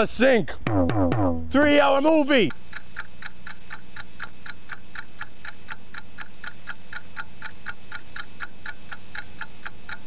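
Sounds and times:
clock ticking fast: 2.4 - 10.0.

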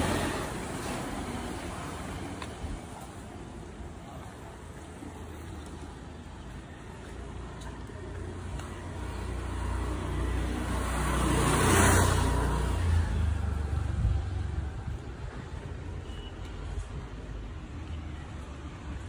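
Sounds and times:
street background noise: 0.0 - 19.0
vehicle passing by: 8.9 - 15.0.

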